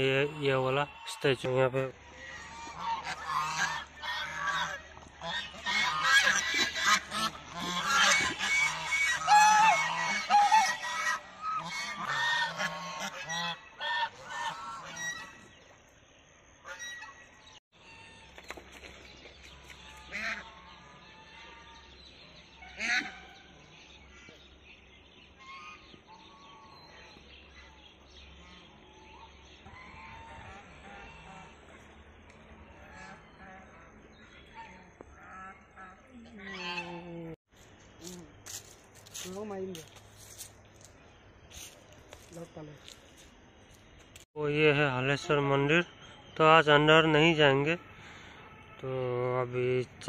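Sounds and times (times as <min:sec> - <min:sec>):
geese honking: 0:00.0 - 0:15.7, 0:16.6 - 0:18.4, 0:19.6 - 0:24.4, 0:25.3 - 0:37.4.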